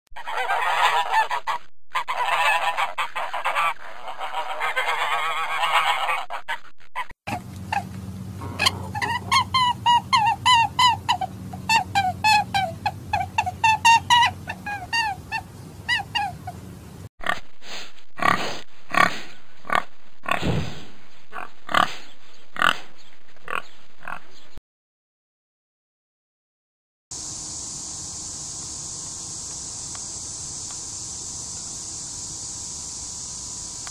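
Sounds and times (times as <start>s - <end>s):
geese honking: 0.2s - 6.7s, 8.4s - 16.6s
pigs grunting: 8.4s - 9.7s, 18.2s - 24.3s.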